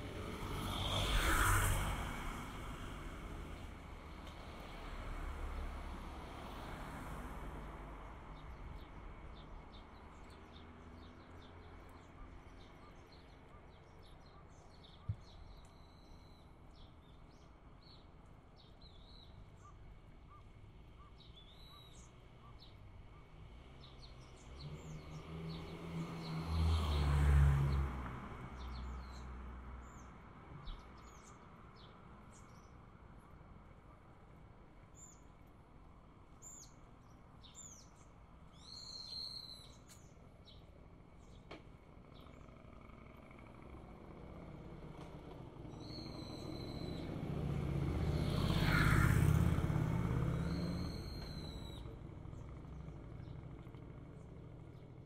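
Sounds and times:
car driving past: 0:00.0 - 0:08.4, 0:23.5 - 0:31.2, 0:42.2 - 0:54.9
steady street hum: 0:00.0 - 0:55.0
small birds chirping: 0:08.1 - 0:27.1, 0:28.6 - 0:55.0.

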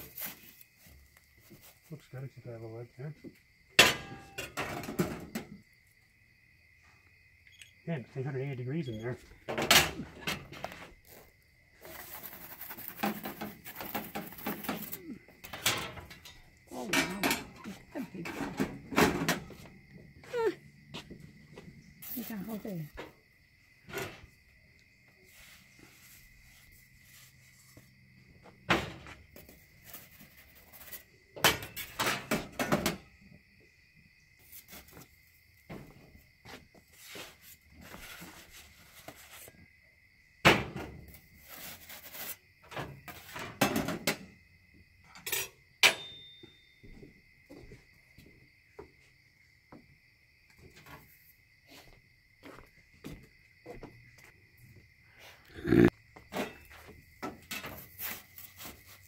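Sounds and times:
insects trilling: 0:00.0 - 0:59.0
metal peels scraping and clattering: 0:11.8 - 0:17.6.

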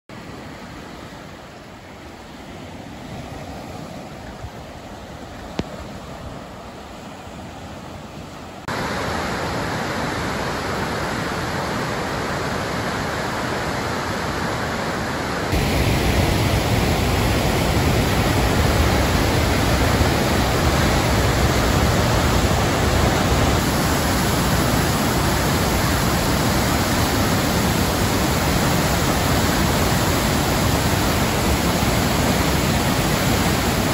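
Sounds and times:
rushing river water: 0:00.1 - 0:33.9.

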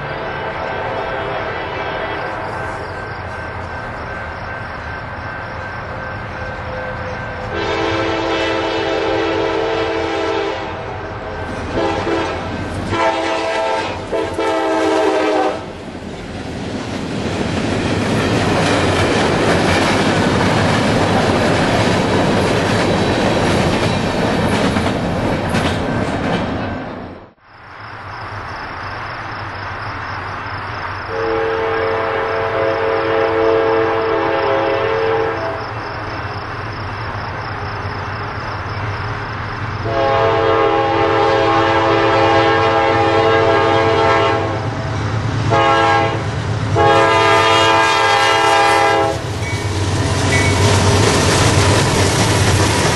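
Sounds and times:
train air horn blasts: 0:00.0 - 0:03.1, 0:06.7 - 0:15.8, 0:31.1 - 0:35.8, 0:39.8 - 0:44.8, 0:45.5 - 0:50.9
freight train passing: 0:00.0 - 0:52.9
wheel and rail noise: 0:00.0 - 0:52.9.

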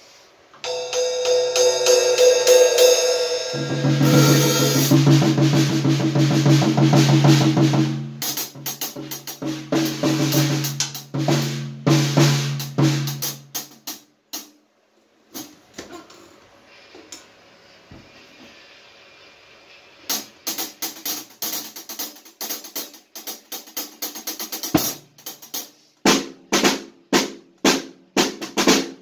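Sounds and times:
drum kit playing: 0:00.6 - 0:14.1, 0:20.1 - 0:29.0.

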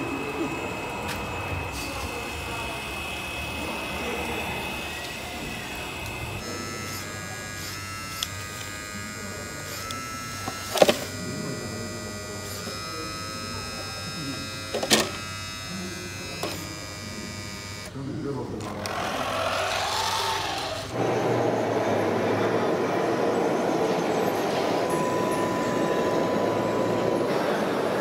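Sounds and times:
hydraulic pump whining: 0:00.0 - 0:28.0.

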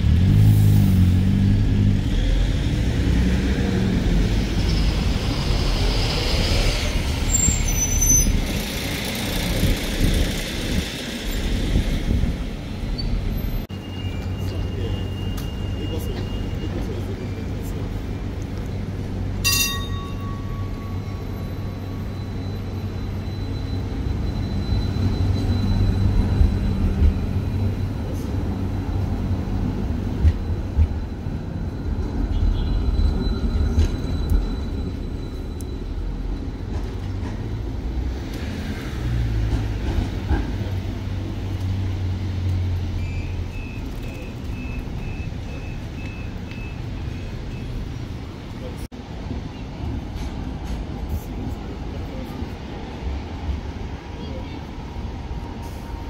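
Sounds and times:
electric tram humming and rumbling: 0:00.0 - 0:56.0
short electronic beeps: 0:43.0 - 0:48.1.

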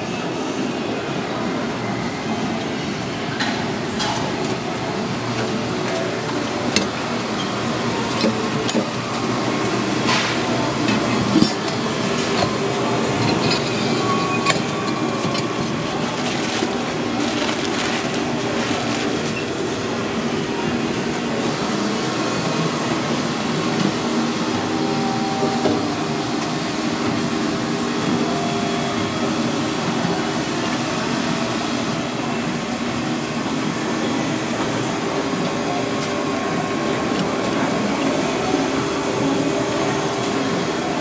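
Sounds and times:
kitchen rumble and hum: 0:02.2 - 0:41.0
clinks and clatters: 0:10.9 - 0:19.4.

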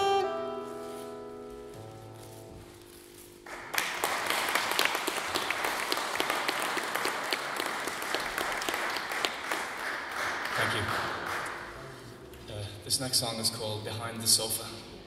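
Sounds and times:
audience applause: 0:03.5 - 0:12.0.

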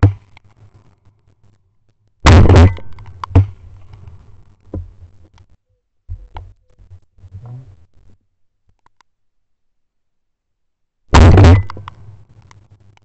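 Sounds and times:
small clicks: 0:00.0 - 0:02.2, 0:08.6 - 0:09.2, 0:11.7 - 0:13.0.

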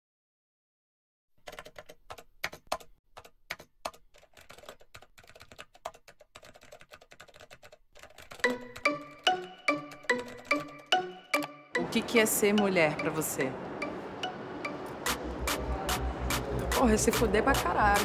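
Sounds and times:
keyboard typing: 0:01.4 - 0:18.0
music with pitched notes: 0:08.4 - 0:18.0.

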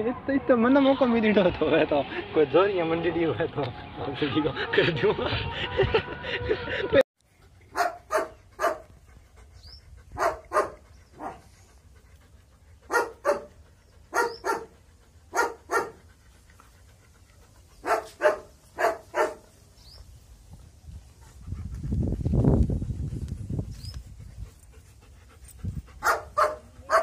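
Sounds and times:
dog barking: 0:07.7 - 0:08.9, 0:10.2 - 0:11.4, 0:12.9 - 0:13.5, 0:14.1 - 0:14.7, 0:15.3 - 0:16.0, 0:17.8 - 0:19.5, 0:26.0 - 0:27.0.

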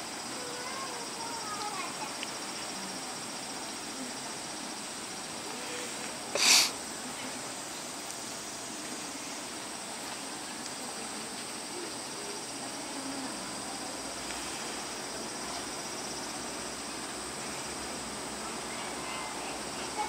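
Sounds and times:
insect chirring: 0:00.0 - 0:06.8, 0:11.4 - 0:20.0
sharp breathy burst: 0:06.3 - 0:06.8.

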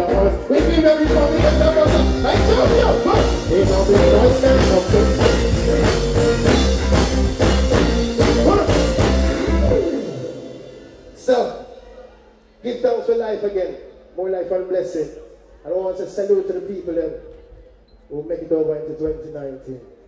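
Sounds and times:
man singing: 0:00.0 - 0:06.9, 0:08.2 - 0:10.2
heavy bass line: 0:00.0 - 0:11.4
reggae band playing: 0:00.0 - 0:14.2.

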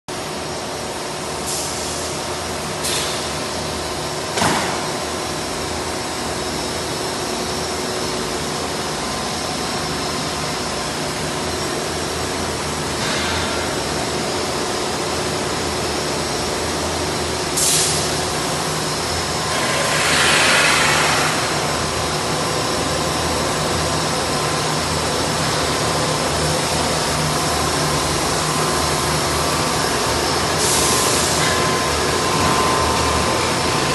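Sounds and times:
factory machinery running: 0:00.1 - 0:33.9
hiss: 0:01.4 - 0:02.2, 0:02.8 - 0:03.3, 0:17.6 - 0:18.2, 0:19.6 - 0:21.7, 0:30.6 - 0:31.4.

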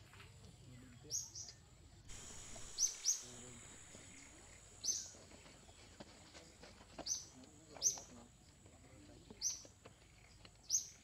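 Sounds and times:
high-pitched insect drone: 0:02.1 - 0:05.2
short sharp bird chirps: 0:02.1 - 0:05.2.

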